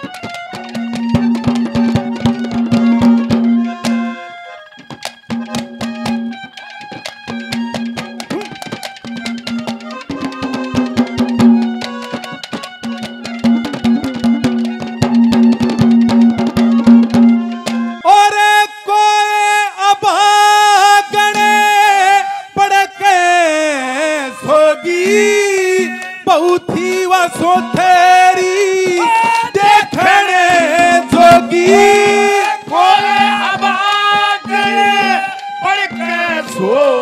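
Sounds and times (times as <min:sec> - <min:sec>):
man singing drawn-out notes: 0:18.0 - 0:37.0.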